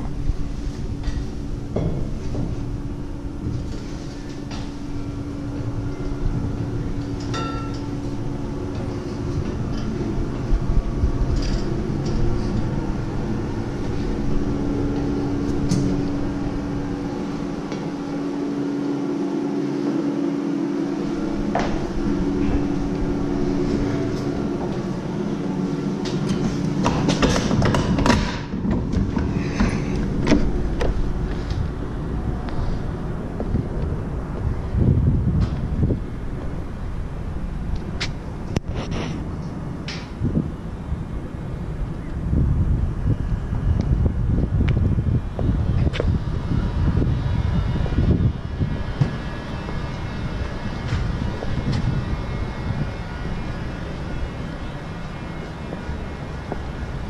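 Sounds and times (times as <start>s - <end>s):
footsteps climbing stairs: 0.0s - 5.6s, 21.0s - 31.9s, 33.3s - 34.5s
low hum and rumble: 0.0s - 57.0s.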